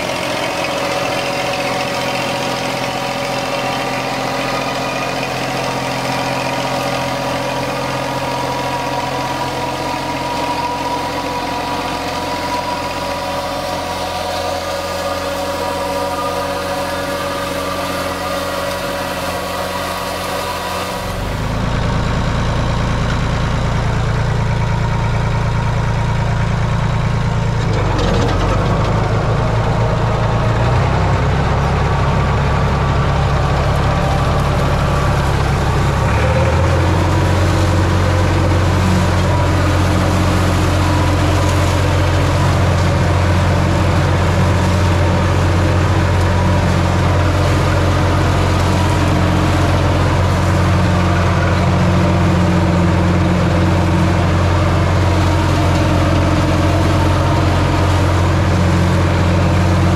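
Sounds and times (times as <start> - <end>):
tractor engine running: 0.0 - 59.9.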